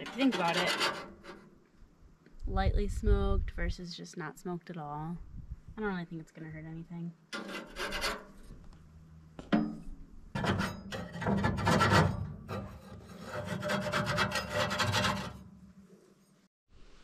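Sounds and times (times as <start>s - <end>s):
rough scraping and rubbing: 0.0s - 1.6s, 7.4s - 8.7s, 10.4s - 15.5s.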